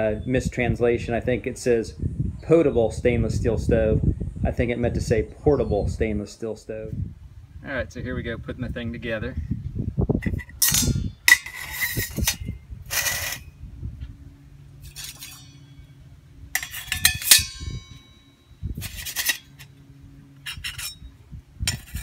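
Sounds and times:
metal stove parts clinking: 0:10.2 - 0:13.4, 0:14.8 - 0:15.9, 0:16.5 - 0:19.7, 0:20.4 - 0:21.1.

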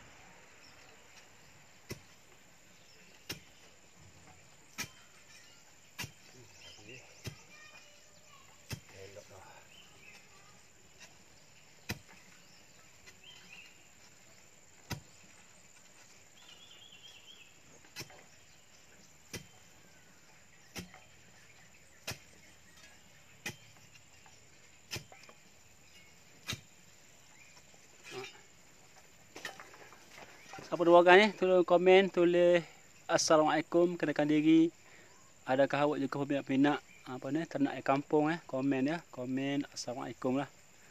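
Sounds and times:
spade striking packed soil: 0:00.0 - 0:31.4.

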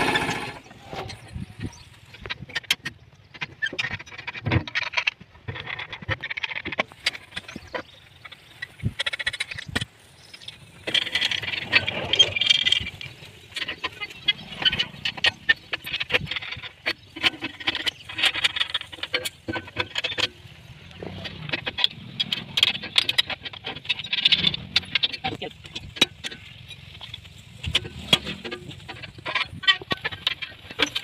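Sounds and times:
small animals chirping: 0:07.2 - 0:19.0.

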